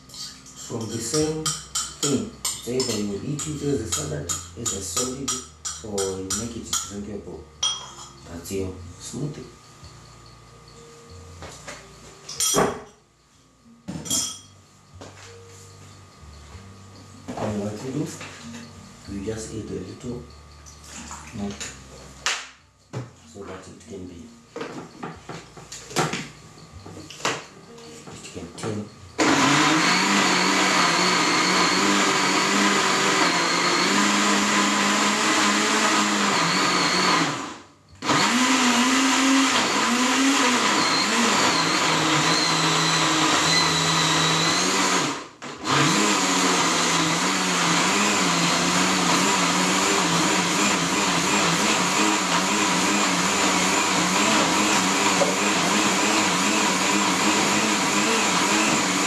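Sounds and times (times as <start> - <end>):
electric blender running: 29.2 - 59.0.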